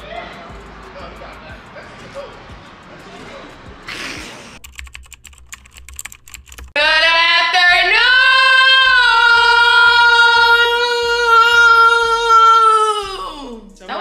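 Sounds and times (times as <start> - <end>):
keyboard typing clicks: 4.6 - 6.8
person singing a long note: 6.8 - 13.6.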